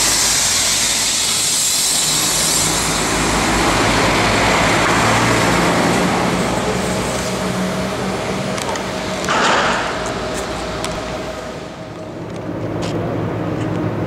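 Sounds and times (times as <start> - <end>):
diesel engine running: 0.0 - 14.0
wheel and rail noise: 0.0 - 14.0.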